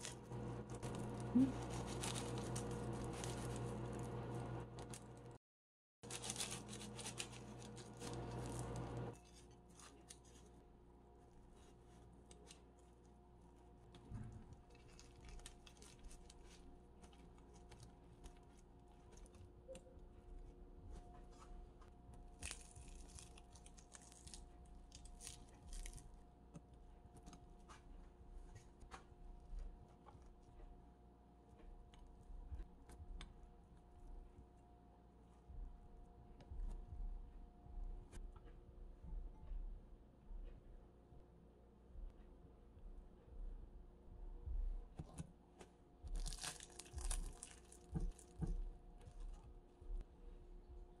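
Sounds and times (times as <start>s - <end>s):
knife sawing crisp pastry: 0.0s - 4.3s.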